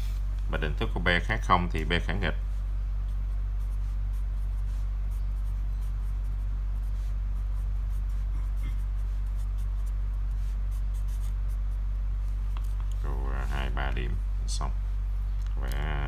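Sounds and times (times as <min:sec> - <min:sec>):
steady low hum: 0:00.0 - 0:16.0
marker pen writing on paper: 0:03.0 - 0:13.0.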